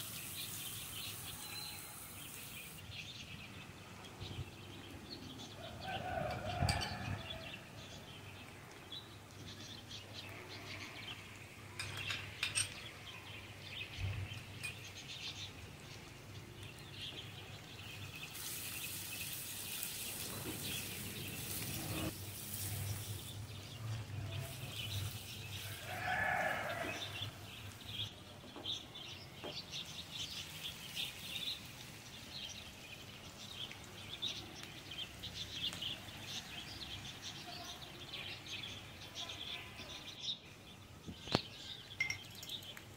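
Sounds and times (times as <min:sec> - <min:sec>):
vegetables stir-frying in oil: 0:00.0 - 0:02.8, 0:16.9 - 0:28.0, 0:30.0 - 0:36.1
birds chirping: 0:00.0 - 0:42.9.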